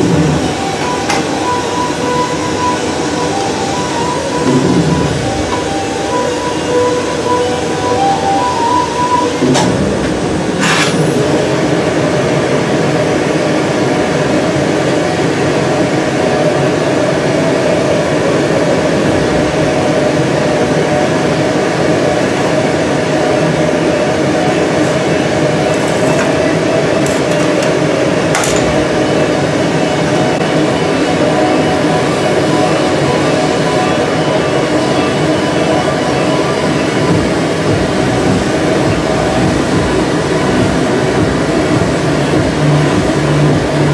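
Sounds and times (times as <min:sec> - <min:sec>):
gas burners and blower roaring: 0:00.0 - 0:43.9.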